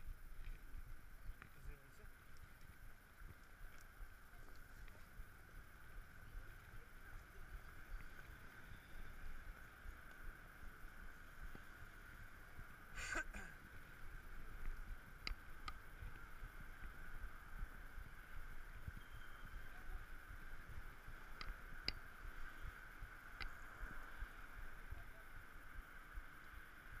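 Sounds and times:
faint hiss-like tone: 0.0s - 27.0s
short ringing tone: 19.0s - 19.7s.

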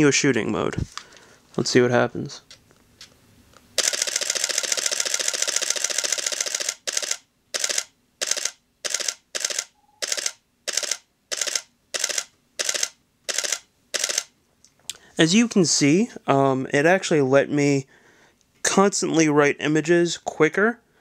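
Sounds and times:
camera shutter clicks: 3.8s - 14.3s.

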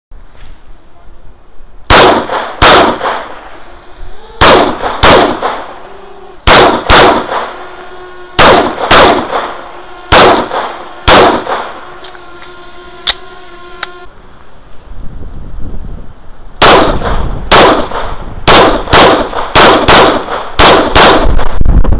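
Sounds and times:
pistol shots: 1.9s - 3.5s, 4.4s - 5.8s, 6.4s - 7.6s, 8.4s - 11.8s, 16.6s - 21.5s
sharp click: 11.4s - 14.0s.

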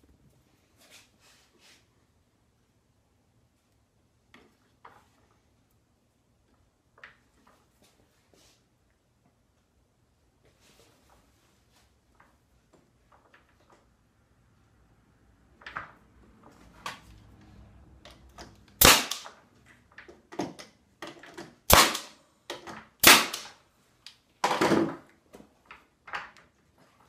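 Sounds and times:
brad nailer shots: 18.8s - 19.4s, 21.6s - 22.2s, 23.0s - 23.6s.

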